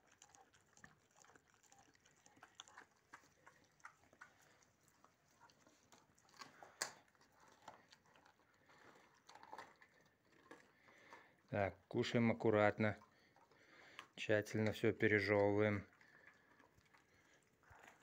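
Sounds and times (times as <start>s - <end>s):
puppy gnawing a bone: 0.0s - 18.0s.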